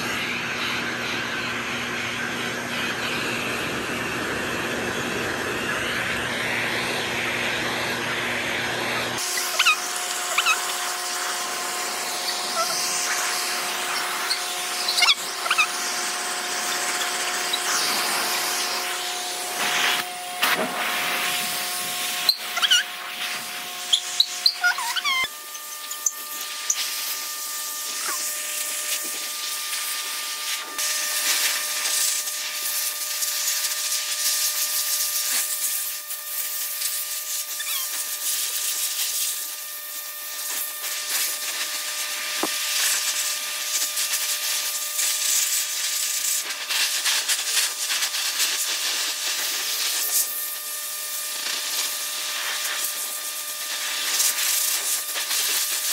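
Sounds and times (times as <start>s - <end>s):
pet hair dryer running: 0.0s - 55.9s
short high squeaks: 9.2s - 10.8s, 12.0s - 13.3s, 13.9s - 15.9s, 22.2s - 23.1s, 23.8s - 27.2s, 27.9s - 28.3s, 37.4s - 38.1s.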